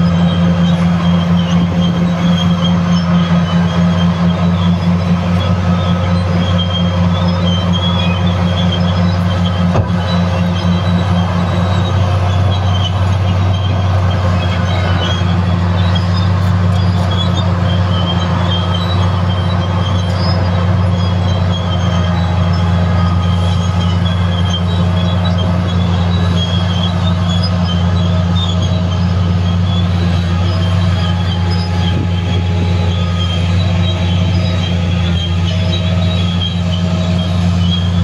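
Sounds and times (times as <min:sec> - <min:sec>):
low diesel engine drone: 0:00.0 - 0:38.0
metallic squeal of crawler tracks: 0:00.0 - 0:38.0.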